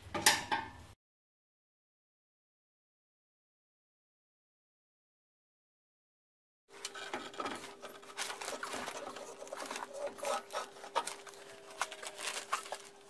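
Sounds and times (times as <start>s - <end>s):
metal clicks knocks and scraping: 6.8s - 12.9s.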